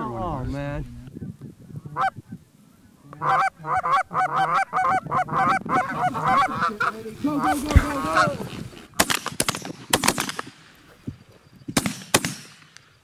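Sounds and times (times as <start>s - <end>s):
goose honking: 2.0s - 2.2s, 3.1s - 8.6s.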